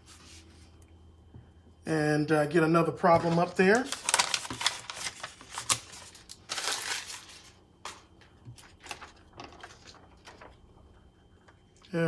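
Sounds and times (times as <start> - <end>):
paper crinkling: 3.1 - 10.7
paper rustling: 3.1 - 10.8.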